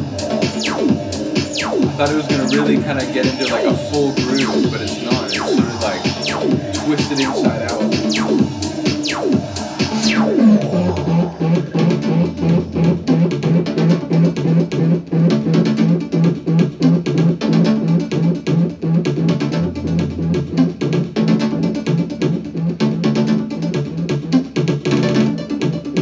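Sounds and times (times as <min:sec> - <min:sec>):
fast ticking percussion: 0:00.0 - 0:14.9
low synth bass pulsing: 0:00.0 - 0:26.0
deep low swell: 0:00.2 - 0:13.3.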